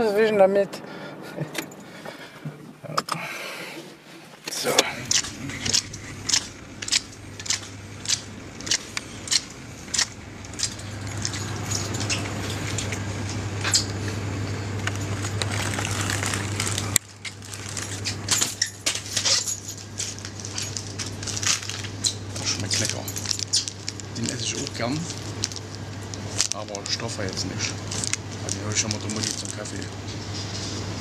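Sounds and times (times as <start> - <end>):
steady low hum: 0.0 - 31.0
packaging crinkling and rustling: 14.8 - 30.4.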